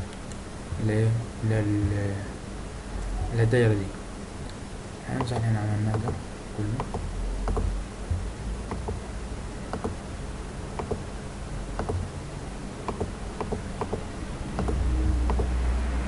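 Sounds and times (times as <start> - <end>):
low hum: 0.0 - 16.0
computer mouse clicking: 5.2 - 6.2, 6.8 - 7.7, 9.7 - 10.0, 10.8 - 11.0, 11.8 - 12.1, 12.9 - 14.0, 14.6 - 15.5
low rumble: 6.7 - 16.0.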